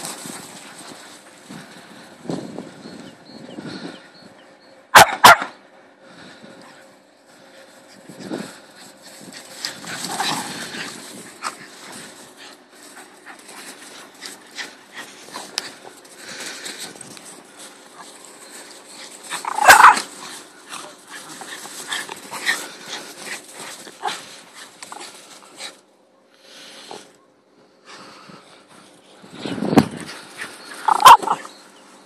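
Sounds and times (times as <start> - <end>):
dogs scuffling in snow: 0.0 - 2.9, 6.8 - 27.1, 27.9 - 32.0
dog barking: 4.9 - 5.6, 30.9 - 31.4.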